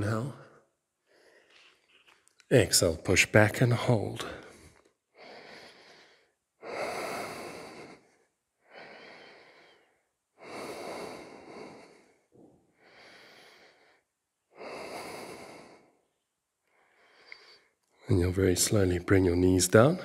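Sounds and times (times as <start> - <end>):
person breathing deeply: 4.2 - 17.8.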